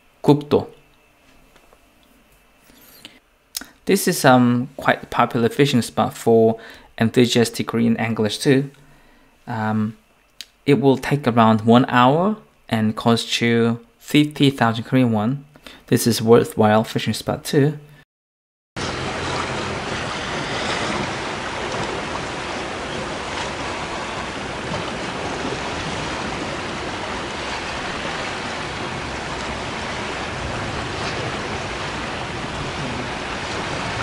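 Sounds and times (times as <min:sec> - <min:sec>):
sea waves on rocky shore: 0:18.8 - 0:34.0
wind: 0:18.8 - 0:34.0.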